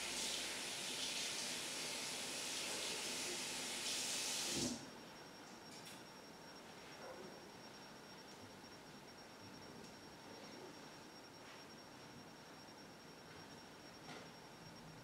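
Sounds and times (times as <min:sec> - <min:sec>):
tap water running at a sink: 0:00.0 - 0:04.8.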